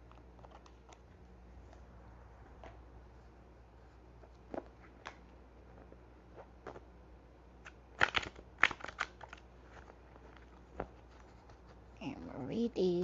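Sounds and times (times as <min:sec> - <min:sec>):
cards being shuffled: 0:00.0 - 0:01.1, 0:07.6 - 0:11.8
sharp card clicks: 0:07.6 - 0:09.4.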